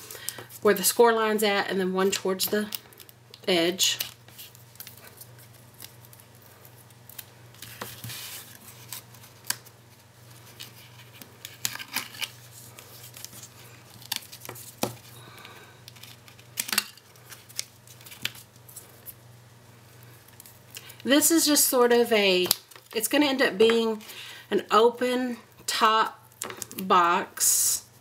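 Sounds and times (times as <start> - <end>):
low steady hum: 0.0 - 28.0
card rustling: 3.8 - 19.2.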